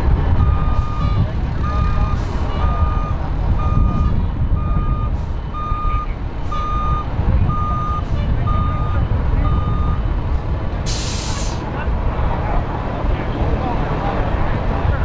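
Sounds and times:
engines idling: 0:00.0 - 0:15.0
truck backup alarm beeping: 0:00.3 - 0:11.6.

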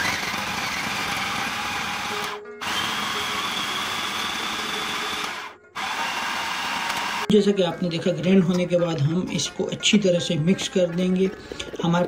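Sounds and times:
food processor grinding: 0:00.0 - 0:07.3.

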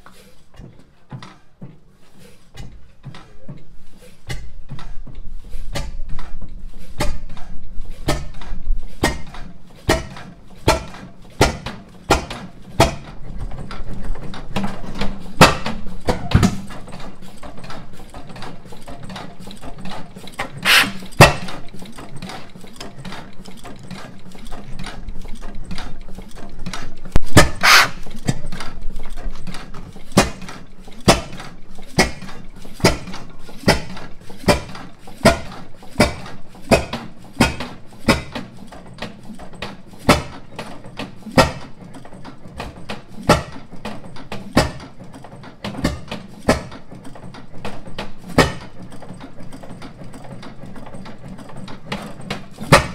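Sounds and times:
engine mechanical clatter: 0:00.0 - 0:52.9
stationary engine exhaust bangs: 0:05.7 - 0:22.3, 0:25.6 - 0:38.6.

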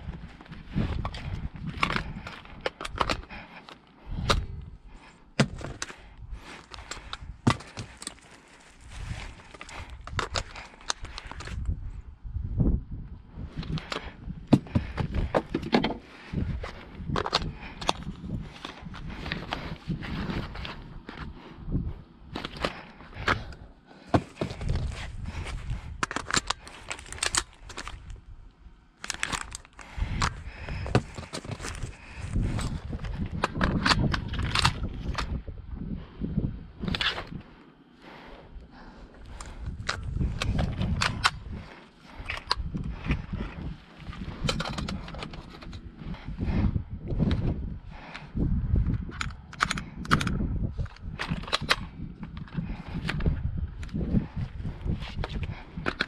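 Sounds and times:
airsoft rifle clicks and knocks: 0:00.4 - 0:04.5, 0:32.5 - 0:35.4, 0:42.2 - 0:45.8, 0:48.9 - 0:54.0, 0:55.2 - 0:56.0.

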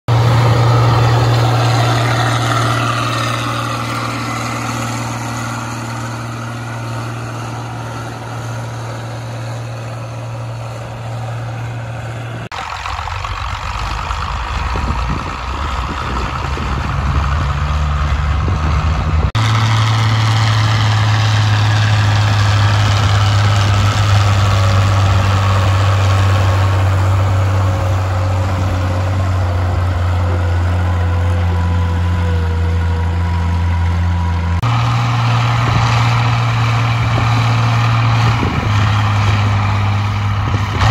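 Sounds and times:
diesel tractor engine under load: 0:00.1 - 0:40.9.

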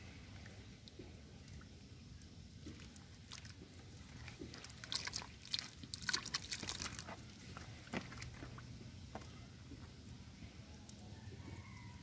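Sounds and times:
wet crackles: 0:00.4 - 0:09.9
muddy water splashing: 0:02.6 - 0:08.7.

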